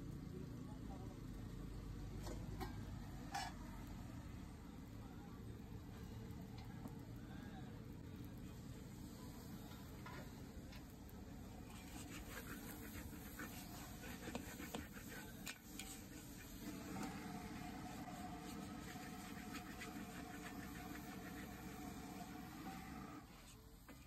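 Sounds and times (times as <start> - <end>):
metal spatula scraping a wok: 2.6 - 3.7, 11.6 - 16.7.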